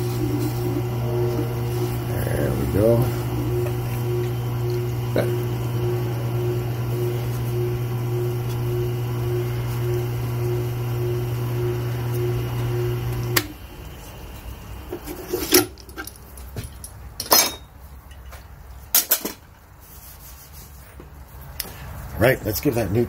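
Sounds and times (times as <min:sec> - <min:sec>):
electric motor humming: 0:00.0 - 0:15.0.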